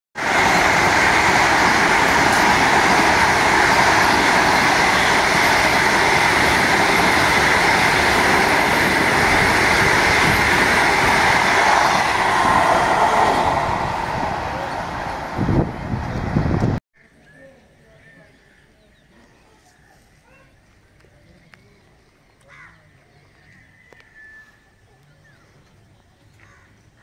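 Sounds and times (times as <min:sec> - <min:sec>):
electric train passing at speed: 0:00.2 - 0:16.8.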